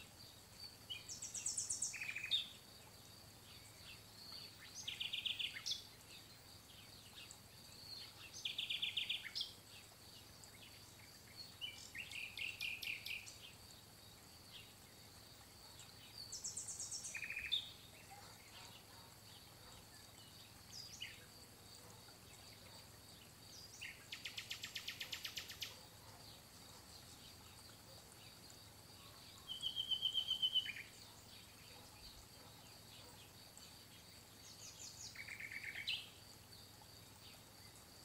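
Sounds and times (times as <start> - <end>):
songbird trilling: 1.0 - 2.5, 11.6 - 13.4, 16.3 - 17.7, 29.5 - 31.0, 35.1 - 36.1.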